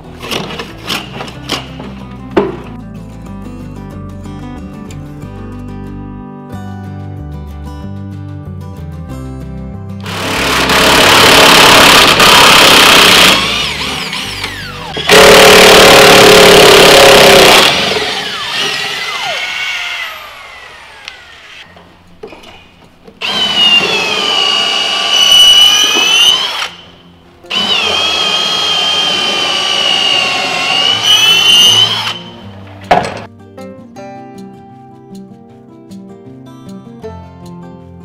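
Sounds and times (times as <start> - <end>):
cordless drill boring into wood: 10.1 - 21.6, 23.2 - 26.8, 27.5 - 32.3.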